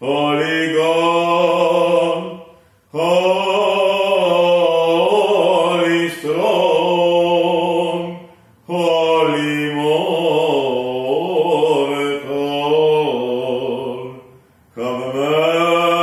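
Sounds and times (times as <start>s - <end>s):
man chanting: 0.0s - 16.0s
breaths: 2.4s - 3.0s, 8.2s - 8.6s, 14.3s - 14.8s.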